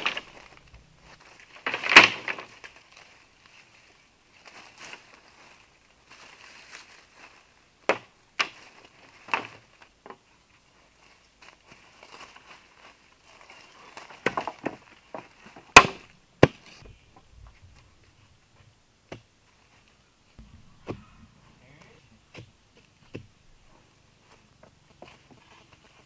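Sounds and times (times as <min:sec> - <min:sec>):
wooden knocks and chops: 0:20.4 - 0:21.2, 0:22.3 - 0:23.4.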